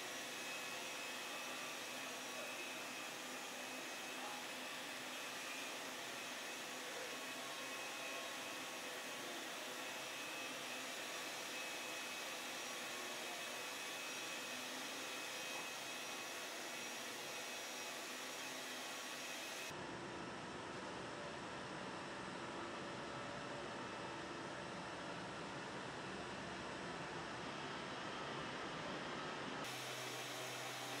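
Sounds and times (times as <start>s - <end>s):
power polisher running: 0.0s - 19.7s, 29.7s - 31.0s.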